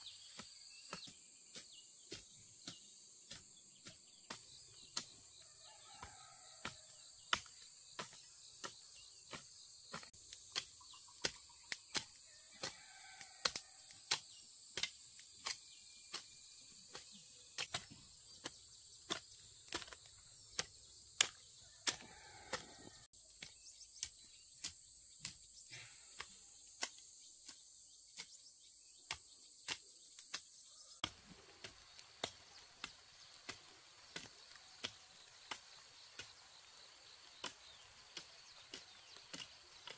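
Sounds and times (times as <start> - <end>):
insects droning: 23.7 - 39.9.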